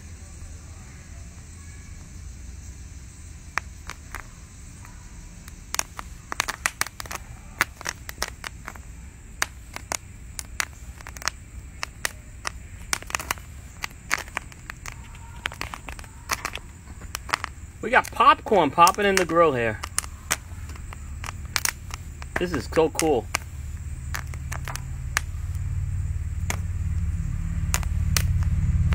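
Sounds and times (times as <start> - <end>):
popcorn popping: 3.5 - 28.9
low steady rumble: 7.2 - 28.9.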